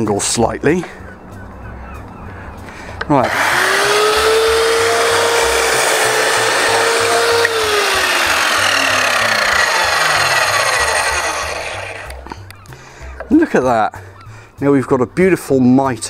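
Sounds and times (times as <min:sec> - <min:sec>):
saw blade winding down: 0:03.1 - 0:12.3
mitre saw cutting wood: 0:03.1 - 0:12.4.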